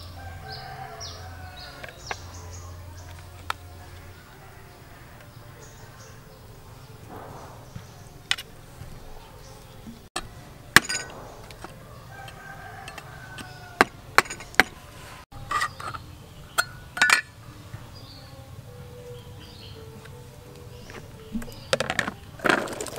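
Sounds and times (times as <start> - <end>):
cleaver clicking on tin can: 10.2 - 14.8.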